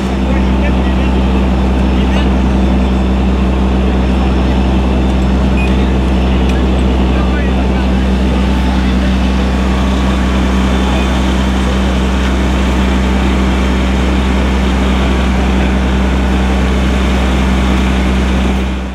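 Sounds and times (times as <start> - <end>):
fire truck engine running: 0.0 - 18.9.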